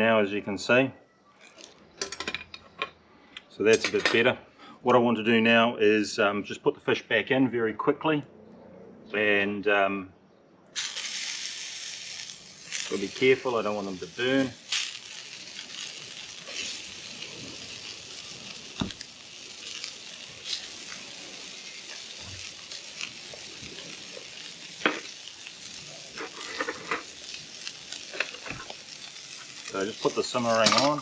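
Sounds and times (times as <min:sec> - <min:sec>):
fish sizzling in frying pan: 0:10.8 - 0:31.0.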